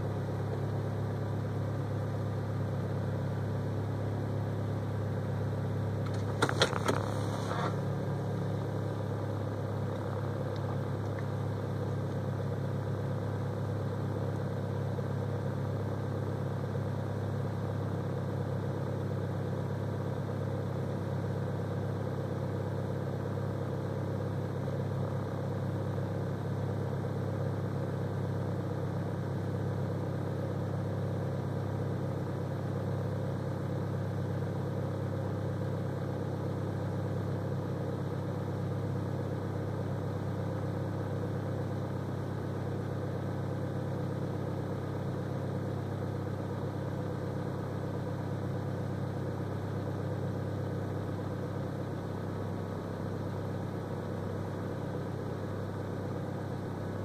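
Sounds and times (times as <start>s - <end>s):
car engine idling: 0.0s - 57.0s.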